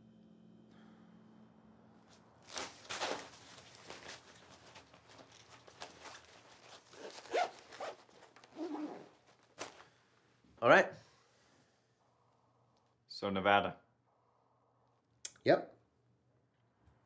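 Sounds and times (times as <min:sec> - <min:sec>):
rustling and handling noises: 0:02.1 - 0:10.3
zipper rasping: 0:06.0 - 0:09.5.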